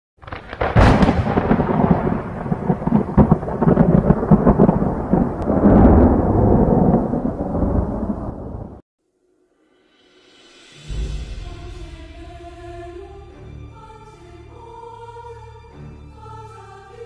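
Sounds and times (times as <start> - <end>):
sharp cracks: 0.2 - 5.6
thunder-like rumbling: 0.2 - 8.8.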